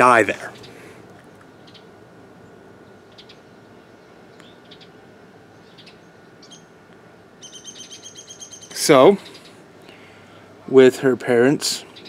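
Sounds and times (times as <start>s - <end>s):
faint bird chirps: 1.4s - 6.7s, 7.4s - 10.1s
fast high bird trill: 7.4s - 9.6s.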